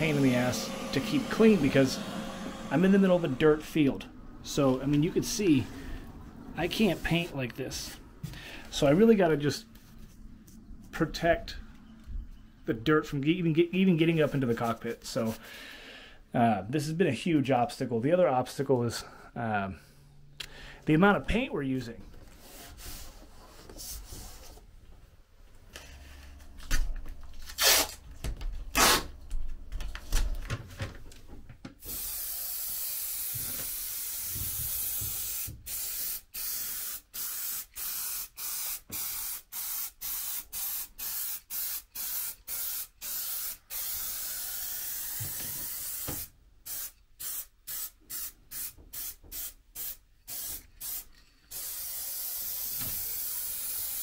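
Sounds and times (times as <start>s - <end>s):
paint spray gun hissing: 0.0s - 3.8s, 31.8s - 54.0s.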